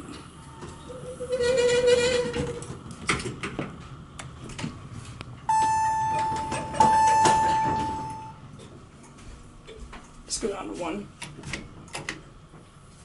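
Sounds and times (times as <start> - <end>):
elevator chime ding: 5.5 - 8.4.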